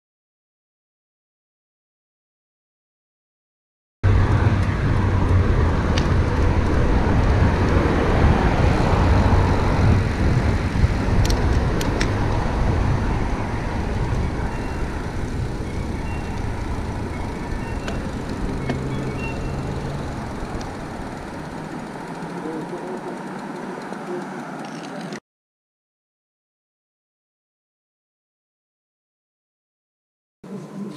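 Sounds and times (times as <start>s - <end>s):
low rumble: 4.0s - 22.1s
road traffic noise: 4.0s - 25.2s
sharp clicks: 16.2s - 19.5s, 20.4s - 22.1s.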